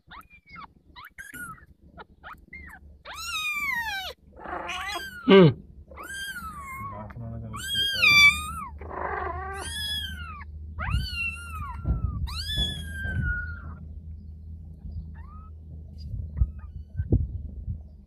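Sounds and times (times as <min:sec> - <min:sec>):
kitten mewing: 0:00.1 - 0:13.8.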